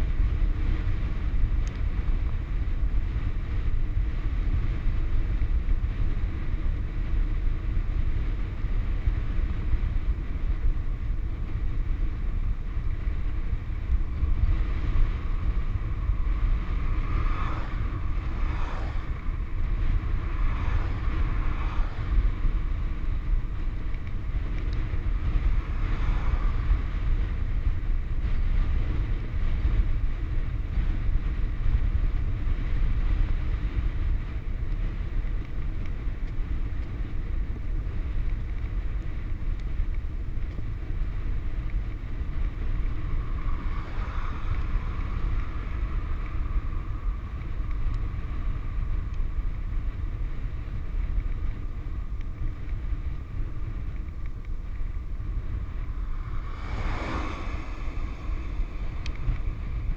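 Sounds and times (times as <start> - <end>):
wind rushing over microphone: 0.0 - 59.9
cars passing: 11.5 - 30.6, 41.3 - 59.9.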